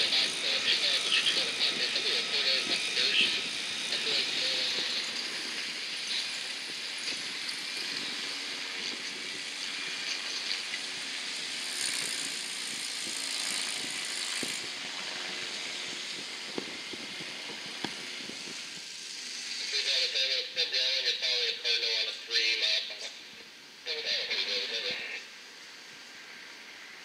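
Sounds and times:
helicopter engine hum: 0.0s - 20.1s
rotor and air hiss: 0.0s - 20.1s.

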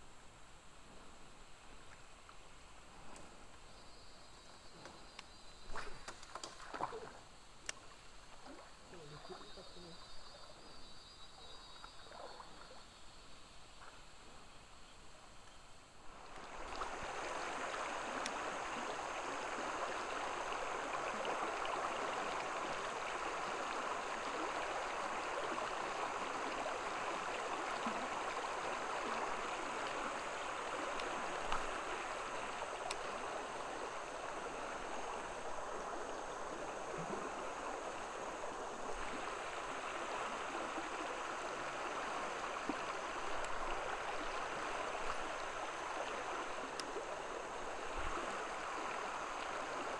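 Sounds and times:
river water flowing over shallows: 0.0s - 49.9s.

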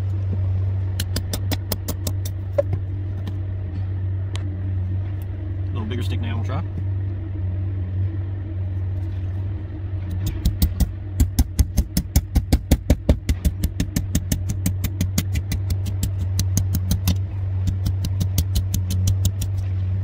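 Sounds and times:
low engine hum: 0.0s - 20.0s.

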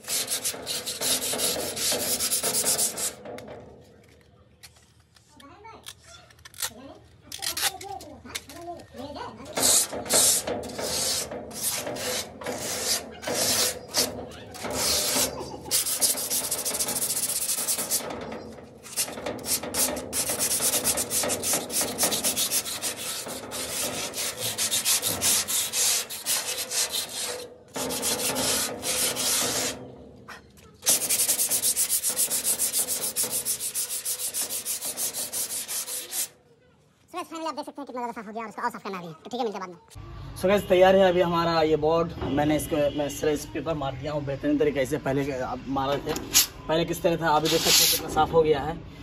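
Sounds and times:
sandpaper scraping rusty metal: 0.0s - 3.4s, 9.4s - 36.4s, 47.3s - 48.2s.

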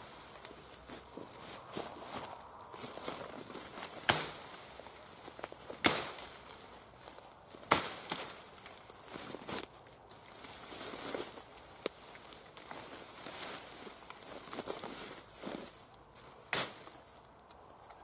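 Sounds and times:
brush rustling and crackling: 0.0s - 18.0s
brush hook chopping canes: 3.9s - 4.5s, 5.8s - 6.4s, 7.7s - 8.3s.

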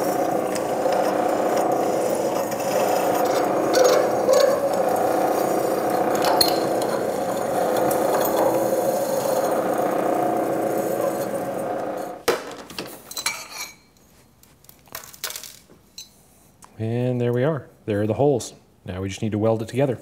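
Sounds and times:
drill bit cutting metal: 0.0s - 12.2s
milling machine spindle running: 0.0s - 12.2s.

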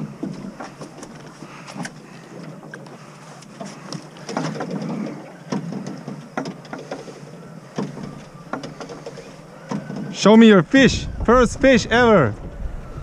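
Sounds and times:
water slapping against boat hull: 0.0s - 10.3s
sea: 0.0s - 13.0s.

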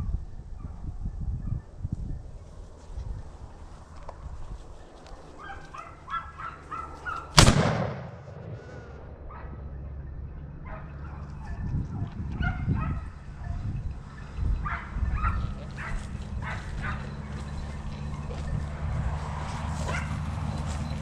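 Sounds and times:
hunting dogs baying: 5.2s - 7.4s, 8.3s - 21.0s
rifle shot: 7.3s - 8.7s.

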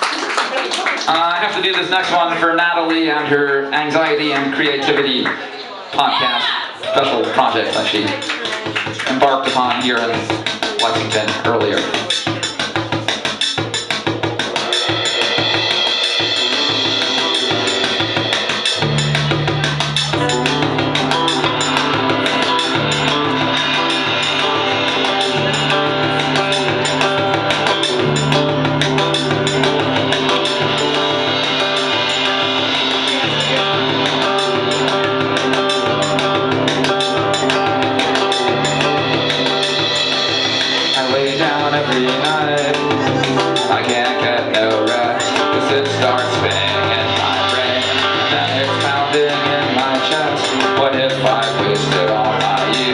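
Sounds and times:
drum kit beat: 6.0s - 52.9s
acoustic guitar: 7.0s - 52.9s
electric bass line: 13.6s - 52.9s.

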